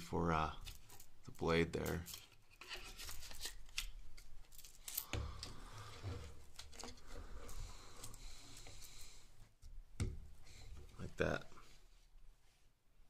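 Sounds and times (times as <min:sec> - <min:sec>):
clicks scrapes and rustles: 0:00.6 - 0:09.1.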